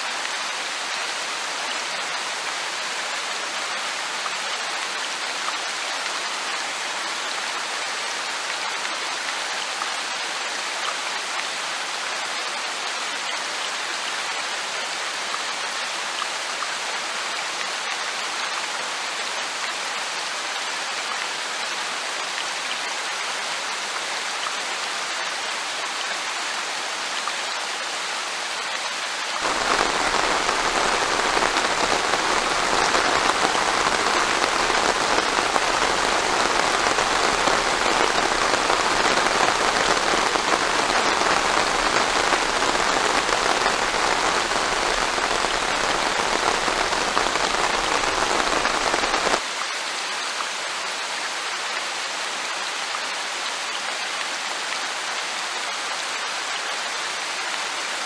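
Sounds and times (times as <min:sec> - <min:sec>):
rain pattering: 0:28.6 - 0:49.5.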